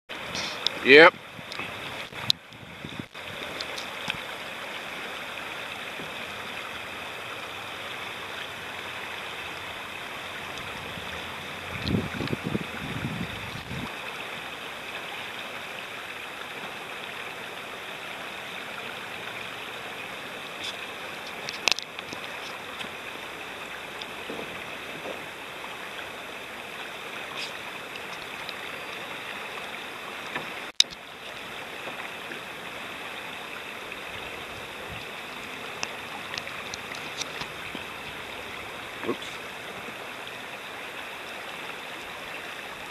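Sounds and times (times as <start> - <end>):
river rapids rushing over rocks: 0.1 - 42.9.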